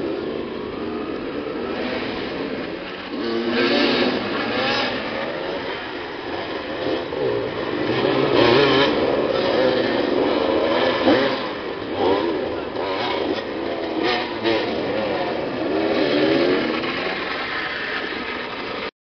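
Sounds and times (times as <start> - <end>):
motorcycle engines revving: 0.0 - 18.9.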